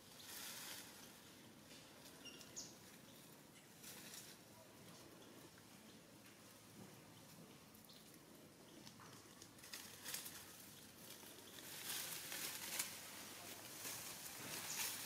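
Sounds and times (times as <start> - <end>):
monkey scrambling through dry leaves: 0.1 - 1.2, 2.0 - 4.5, 8.8 - 15.0.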